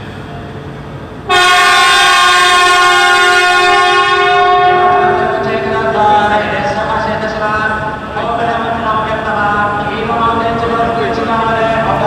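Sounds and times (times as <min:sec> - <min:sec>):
train horn long steady note: 0:01.3 - 0:06.4.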